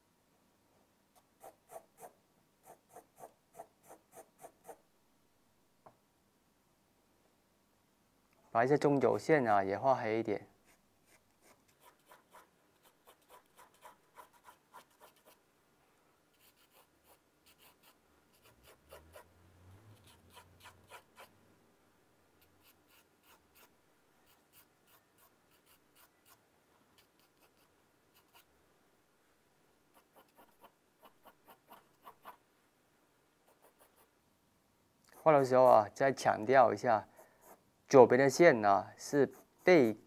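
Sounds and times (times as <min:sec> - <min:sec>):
pencil scratching on paper: 0:01.4 - 0:04.8, 0:10.6 - 0:15.4, 0:16.3 - 0:19.3, 0:20.0 - 0:21.4, 0:22.4 - 0:26.4, 0:27.0 - 0:28.5, 0:29.9 - 0:32.4, 0:33.4 - 0:34.1, 0:35.1 - 0:36.0, 0:37.1 - 0:37.6, 0:39.2 - 0:40.0.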